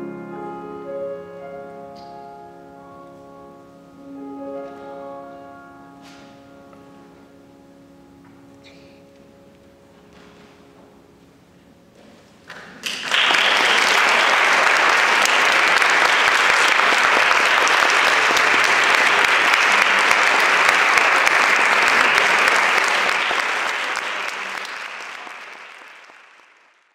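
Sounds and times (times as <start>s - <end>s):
audience applauding: 12.5s - 26.9s.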